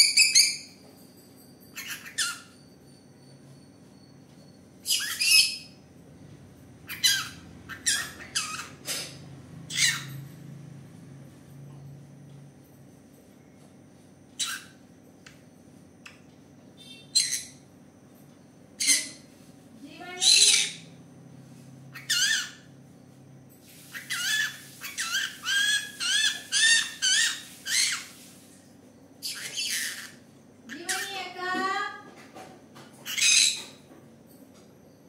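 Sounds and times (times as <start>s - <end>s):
parrot chirps: 0.0s - 0.8s, 1.6s - 2.7s, 4.8s - 5.8s, 6.8s - 10.3s, 14.4s - 14.8s, 16.8s - 17.6s, 18.8s - 19.3s, 20.1s - 21.0s, 21.9s - 22.7s, 23.7s - 28.3s, 29.2s - 31.2s, 33.0s - 33.8s
parrot squawks: 1.8s - 2.6s, 4.8s - 5.7s, 6.8s - 8.8s, 9.7s - 10.2s, 14.4s - 14.8s, 16.8s - 17.6s, 20.2s - 20.8s, 21.9s - 22.7s, 23.9s - 28.2s, 29.2s - 31.1s, 33.0s - 33.6s.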